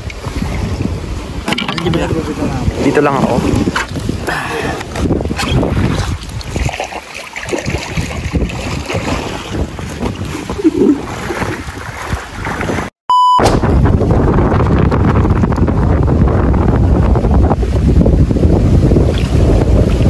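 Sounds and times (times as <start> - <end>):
wind buffeting microphone: 0.0 - 12.9, 13.5 - 20.0
water noise: 0.0 - 20.0
short electronic beep: 13.1 - 13.5.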